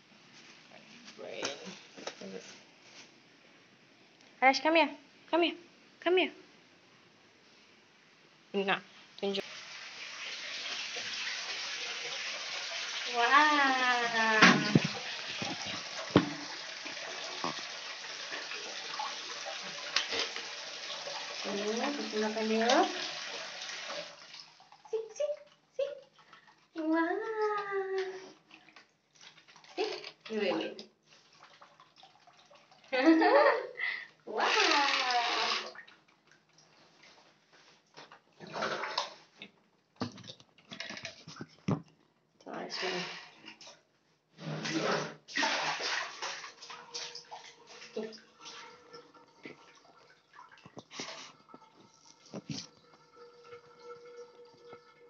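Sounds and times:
tap water pouring into basin: 9.4s - 26.7s, 28.4s - 33.0s, 34.6s - 36.7s, 44.6s - 55.0s.

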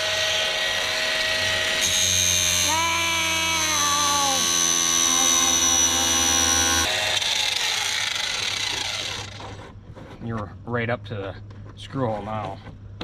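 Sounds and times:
angle grinder grinding: 0.0s - 9.6s.

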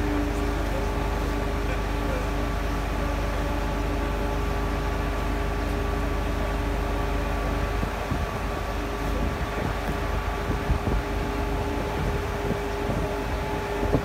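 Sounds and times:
low engine rumble: 0.0s - 14.0s
steady machine whine: 0.0s - 14.0s.

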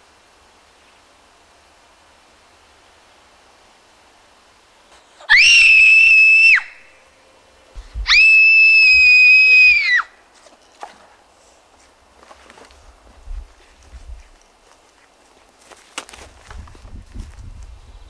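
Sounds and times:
girl screaming: 5.3s - 6.8s, 8.1s - 10.1s.

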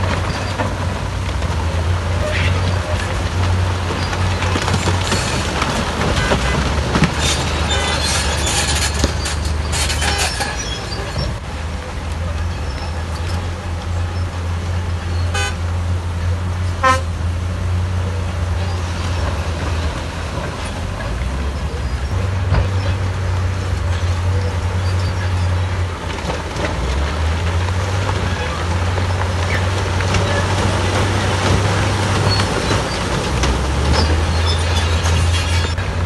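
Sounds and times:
heavy machinery engine hum: 0.0s - 36.0s
short horn beeps: 16.8s - 17.1s.

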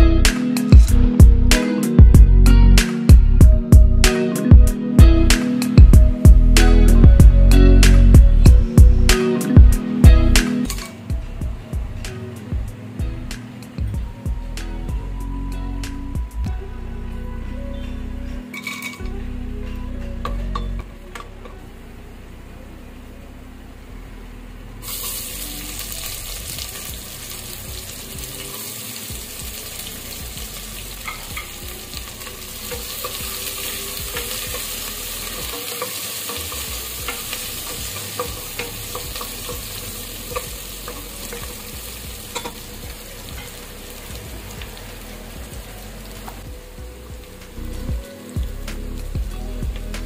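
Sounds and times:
nuts frying: 24.8s - 50.0s
onions sizzling in hot fat: 24.8s - 50.0s.

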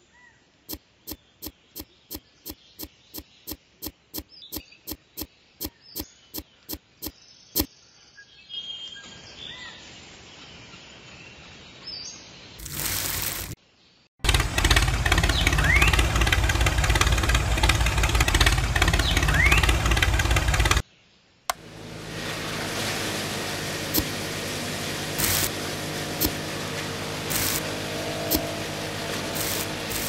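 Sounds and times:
sand poured from bucket: 12.6s - 13.6s, 21.8s - 30.0s
small shovel digging into sand: 12.6s - 13.6s, 25.2s - 25.6s, 27.3s - 27.7s, 29.4s - 30.0s.

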